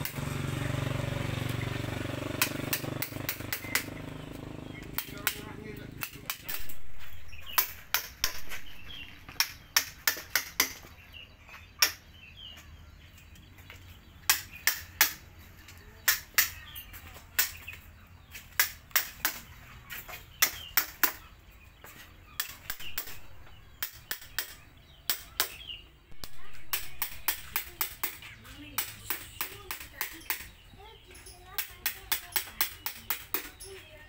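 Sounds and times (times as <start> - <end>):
birds chirping faintly: 0.0 - 34.0
mallet striking wood chisel: 7.4 - 8.6, 23.8 - 25.6.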